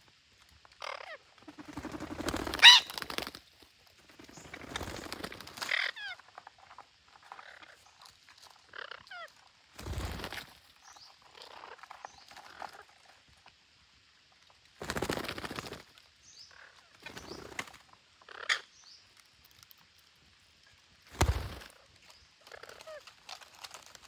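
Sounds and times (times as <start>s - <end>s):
wings fluttering: 0.8s - 13.2s, 14.7s - 16.1s, 16.8s - 18.0s, 20.9s - 24.0s
parakeets chirping: 2.6s - 2.9s.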